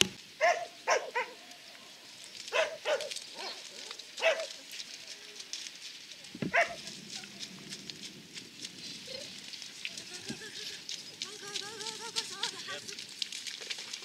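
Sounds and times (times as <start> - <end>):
dog barking: 0.4 - 1.4, 2.5 - 4.6, 6.5 - 6.9.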